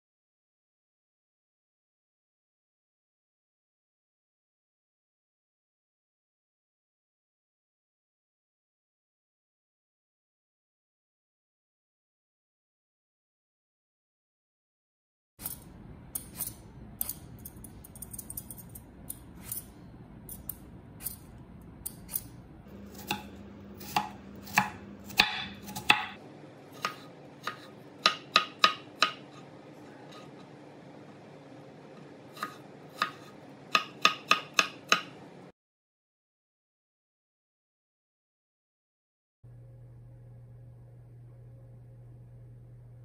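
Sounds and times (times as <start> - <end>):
knife chopping apple on wooden board: 21.9 - 26.2, 26.8 - 30.5, 32.0 - 35.2.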